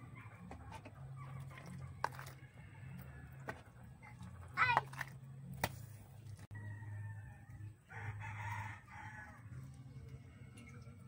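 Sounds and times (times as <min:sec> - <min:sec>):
rooster crowing: 0:06.5 - 0:09.5.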